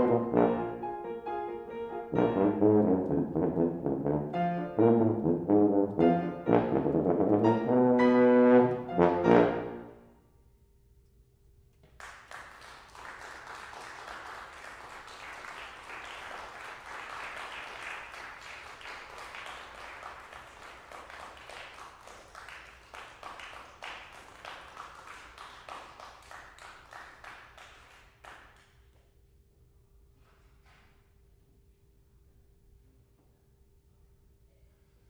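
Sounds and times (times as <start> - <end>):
audience applauding: 12.0 - 28.6.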